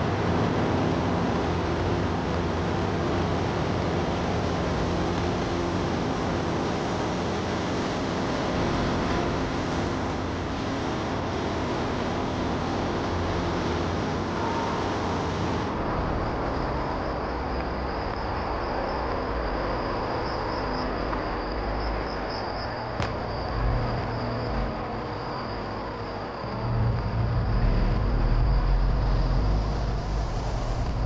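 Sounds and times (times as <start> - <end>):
rushing background noise: 0.0 - 31.0
insects trilling: 16.1 - 31.0.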